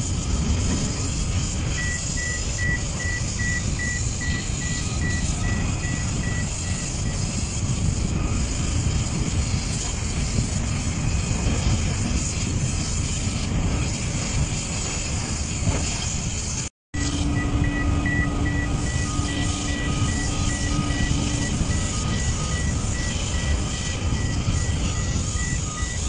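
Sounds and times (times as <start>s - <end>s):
machinery rumble: 0.0s - 26.0s
high-pitched warning beeper: 1.7s - 7.3s, 17.0s - 26.0s.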